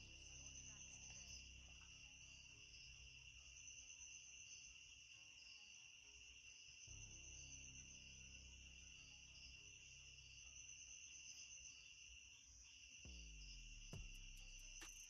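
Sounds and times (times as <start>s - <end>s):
low hum: 6.9s - 11.2s.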